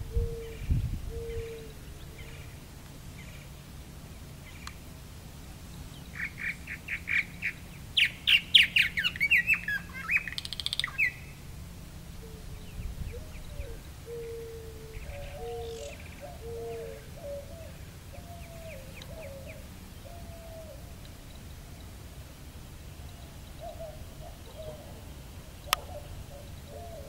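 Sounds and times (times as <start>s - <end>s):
dove cooing: 0.0s - 3.5s, 12.2s - 21.0s, 23.5s - 27.0s
bird singing chirps and warbles: 0.0s - 27.0s.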